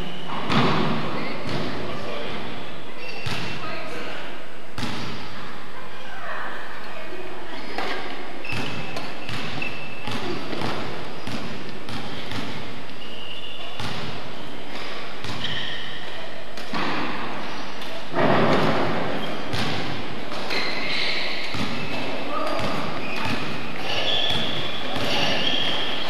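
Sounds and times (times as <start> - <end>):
rackets striking shuttlecock: 19.5 - 26.0.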